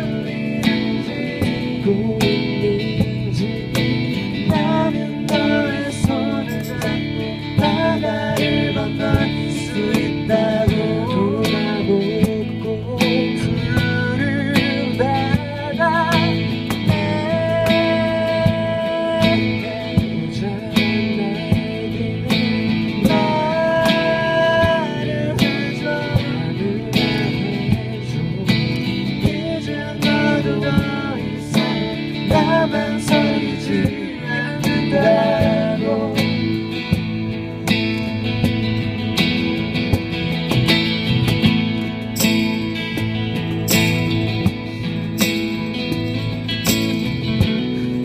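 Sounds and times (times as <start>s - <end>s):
person singing: 0.0s - 37.1s
acoustic guitar strumming: 0.0s - 48.0s
keyboard: 0.0s - 48.0s.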